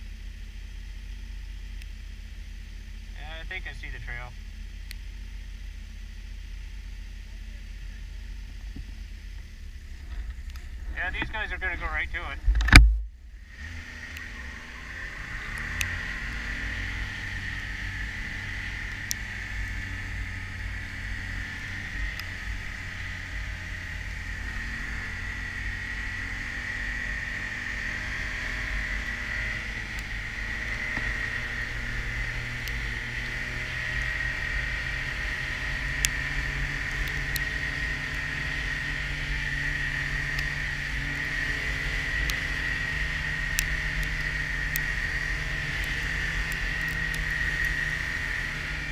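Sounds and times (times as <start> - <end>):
snowmobile engine running: 0.0 - 48.9
high whine: 2.7 - 48.9.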